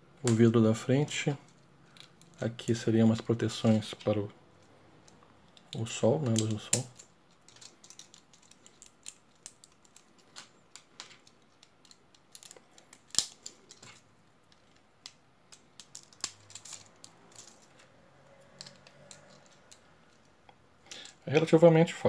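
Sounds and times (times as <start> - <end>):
plastic bricks clicking: 5.5 - 17.6.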